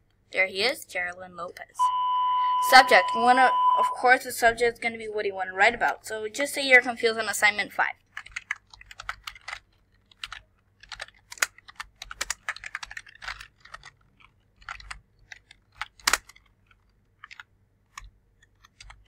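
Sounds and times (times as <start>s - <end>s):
typing on computer keyboard: 8.0s - 19.0s.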